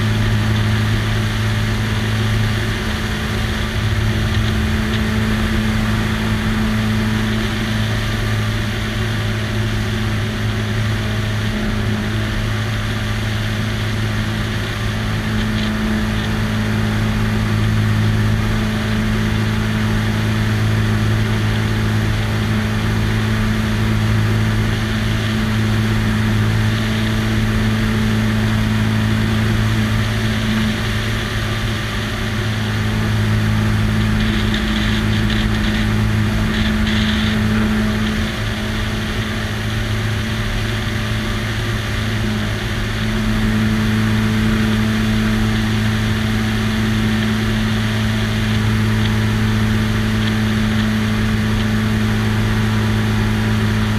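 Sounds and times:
air rushing over microphone: 0:00.0 - 0:09.2
propeller plane engine droning: 0:00.0 - 0:53.9.

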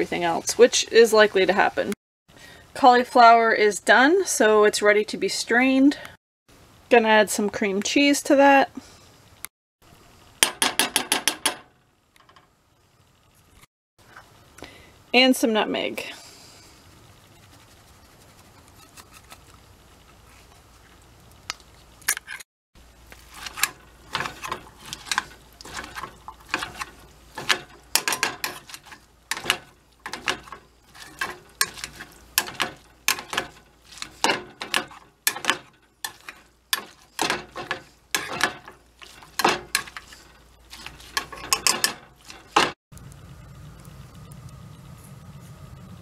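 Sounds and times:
potato masher clanking in saucepan: 0:40.8 - 0:42.7.

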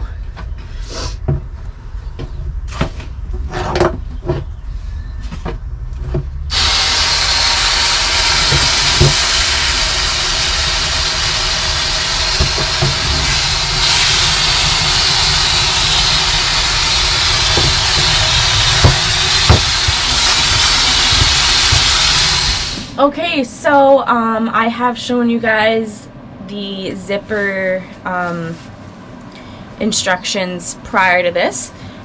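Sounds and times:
low steady hum: 0:00.0 - 0:32.0
hose water spraying on floor: 0:06.5 - 0:22.9
knocks and clatter: 0:12.3 - 0:22.2.

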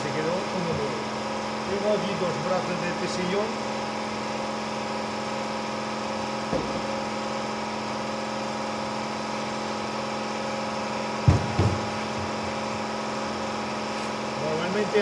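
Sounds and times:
machine hum: 0:00.0 - 0:15.0
block thumping on worktable: 0:06.5 - 0:07.0, 0:11.2 - 0:12.4.

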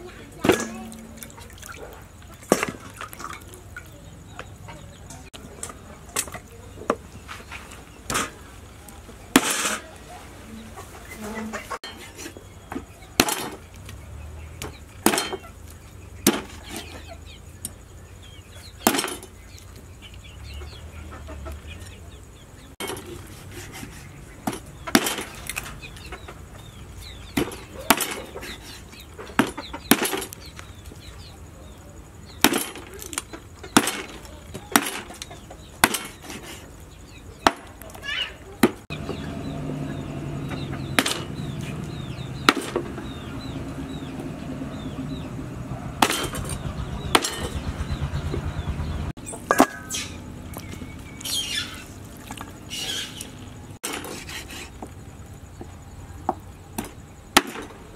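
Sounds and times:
cleaver chopping bones on wood: 0:13.2 - 0:13.6, 0:16.2 - 0:16.6, 0:18.8 - 0:19.2, 0:24.4 - 0:25.4, 0:27.4 - 0:28.6, 0:29.4 - 0:30.4, 0:32.4 - 0:32.9, 0:33.7 - 0:35.2, 0:35.8 - 0:36.4, 0:40.9 - 0:41.5, 0:42.4 - 0:43.2, 0:46.0 - 0:47.6, 0:56.8 - 0:57.8.

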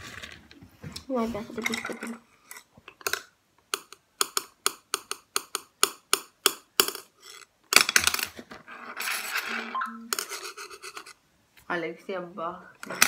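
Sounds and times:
bowls rattling and scraping: 0:00.0 - 0:03.3, 0:07.0 - 0:11.2.

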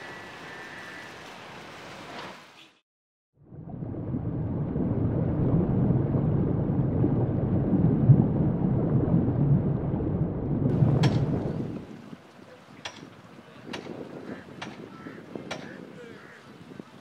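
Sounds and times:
loud low rumbling: 0:03.4 - 0:11.9.

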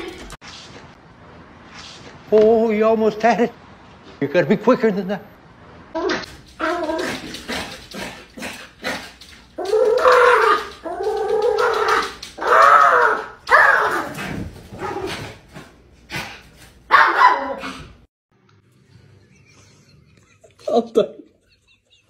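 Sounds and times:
paws scratching glass door: 0:06.2 - 0:15.4
dog whining barks: 0:11.6 - 0:14.1, 0:16.9 - 0:17.8.

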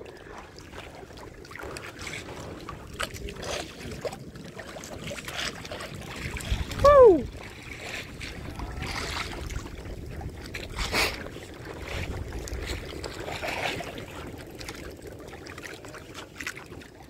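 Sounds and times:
water sloshing around boat: 0:00.0 - 0:17.0
wind on microphone: 0:02.0 - 0:14.3
low rumble: 0:06.5 - 0:07.3.

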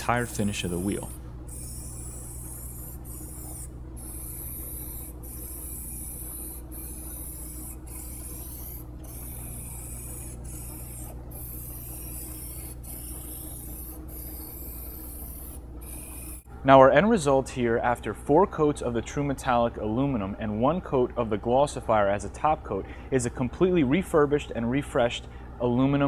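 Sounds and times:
aerosol spray can hissing: 0:00.0 - 0:16.5.

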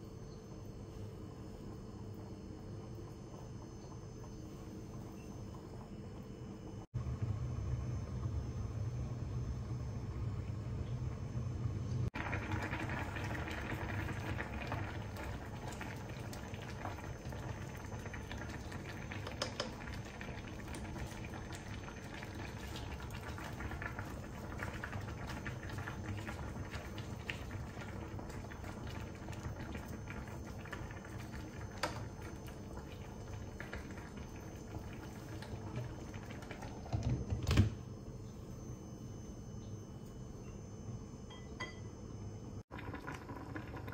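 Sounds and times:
broth boiling: 0:00.0 - 0:43.9
glass lid clunk: 0:41.3 - 0:41.9.

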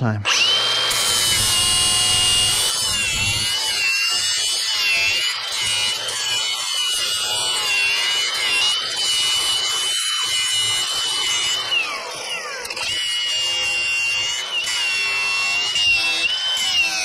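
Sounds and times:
electric grinder whining: 0:00.2 - 0:17.0.

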